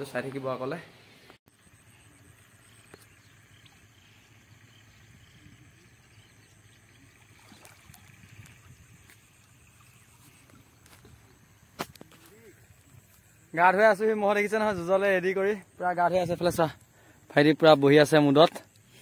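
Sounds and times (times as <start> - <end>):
faint water splashes: 1.6 - 14.0.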